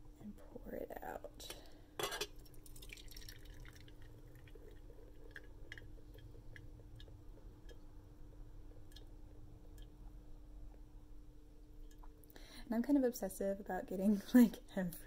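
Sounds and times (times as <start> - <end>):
tea pouring through a strainer: 2.3 - 9.9.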